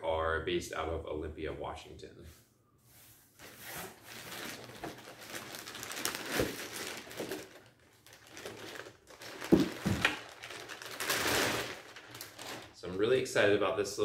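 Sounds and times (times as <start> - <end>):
plastic bag crinkling: 3.4 - 13.0.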